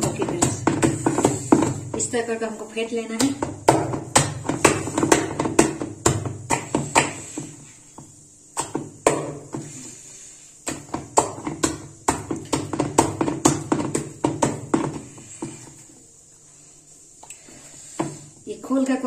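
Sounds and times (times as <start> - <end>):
batter slapping in steel bowl: 0.0 - 2.4, 3.0 - 15.9.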